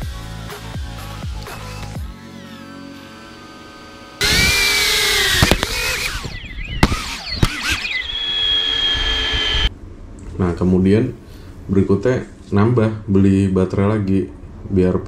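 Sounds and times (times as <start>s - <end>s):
drone motors whining: 1.4s - 9.7s
sharp clicks: 4.2s - 8.1s.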